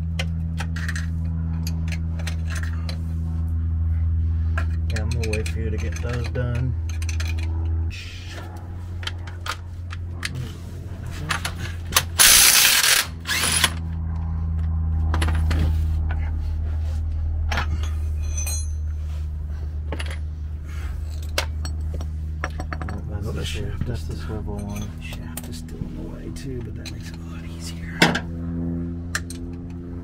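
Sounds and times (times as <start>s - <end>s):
steady low hum: 0.0s - 30.0s
ratchet wrench clicking: 12.2s - 13.8s.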